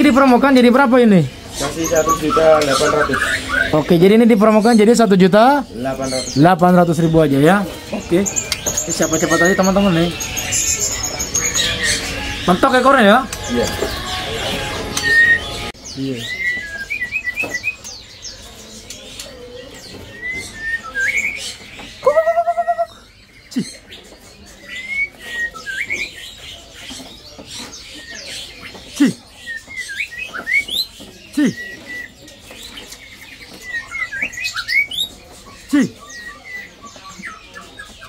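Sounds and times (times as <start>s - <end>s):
songbirds chirping and whistling: 0.0s - 38.0s.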